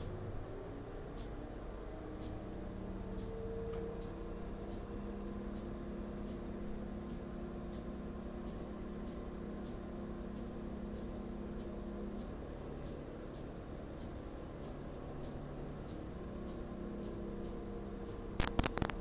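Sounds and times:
train engine hum: 0.0 - 19.0.

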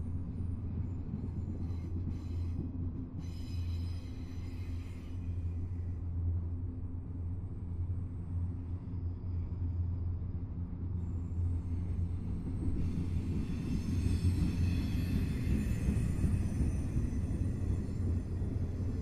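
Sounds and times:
wheels hissing and ringing on rail: 1.4 - 5.9, 11.3 - 19.0.

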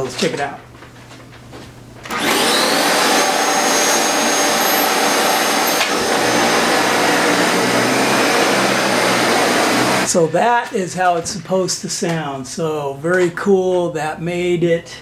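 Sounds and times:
upright vacuum running on carpet: 2.1 - 10.1.

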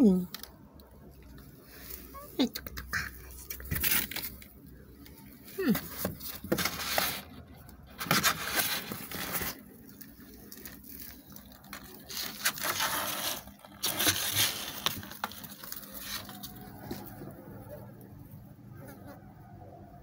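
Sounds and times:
cardboard and paper rustling: 3.3 - 17.6.

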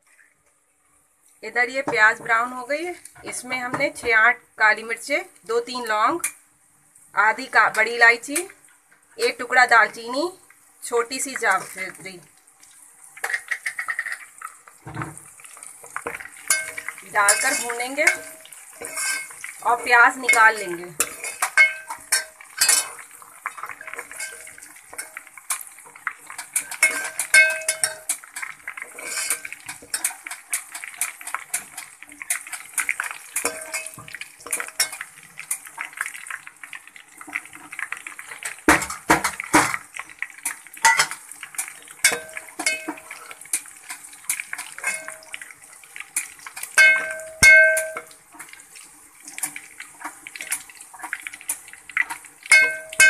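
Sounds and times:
onions and spices frying in oil: 0.0 - 53.0
spoon knocking ringing pot: 16.5 - 18.5, 21.5 - 22.8, 26.8 - 28.1, 42.0 - 43.1, 44.8 - 45.3, 46.8 - 48.2, 52.5 - 53.0
steel spoon scraping steel pot: 16.5 - 19.4, 20.2 - 23.0, 23.8 - 25.1, 26.4 - 28.1, 28.9 - 30.2, 33.4 - 35.0, 44.8 - 45.2.

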